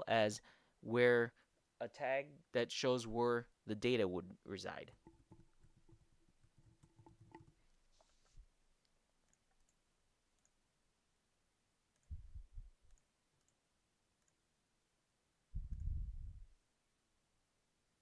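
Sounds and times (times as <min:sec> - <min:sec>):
computer mouse clicks: 0:05.0 - 0:09.8, 0:10.4 - 0:10.6, 0:12.8 - 0:13.6, 0:14.2 - 0:14.4
short low rumbles: 0:15.6 - 0:16.5.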